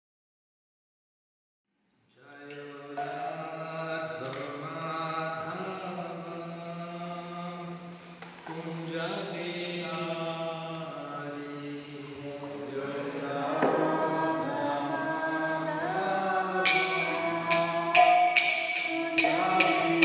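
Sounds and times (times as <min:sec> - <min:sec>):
man chanting: 0:02.1 - 0:13.6, 0:15.9 - 0:20.0.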